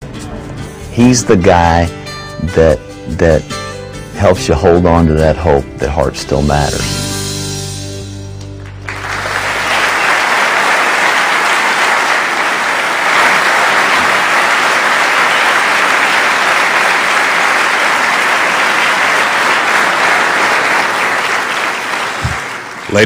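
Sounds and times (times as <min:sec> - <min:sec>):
large audience applauding: 0:08.6 - 0:23.0.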